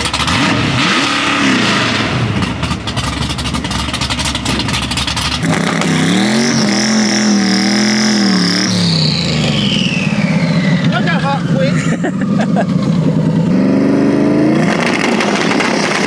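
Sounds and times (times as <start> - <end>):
drag-race car engine at full throttle: 0.0 - 16.0
high engine whistle: 6.3 - 11.1.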